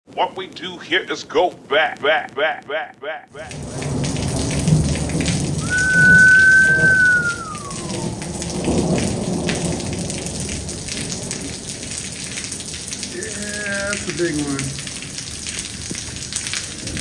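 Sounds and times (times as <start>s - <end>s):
steady rain: 0.1s - 17.0s
rumbling thunder: 3.5s - 13.1s
high whistling tone: 5.6s - 8.2s.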